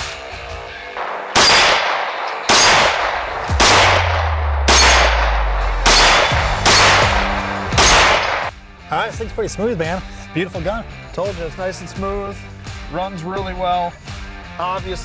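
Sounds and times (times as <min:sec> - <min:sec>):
rifle shots with echo: 0:01.0 - 0:08.5.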